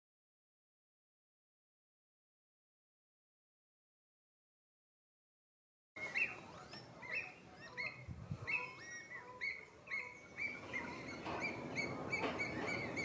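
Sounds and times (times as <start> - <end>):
wetland birds whistling: 6.0 - 13.0.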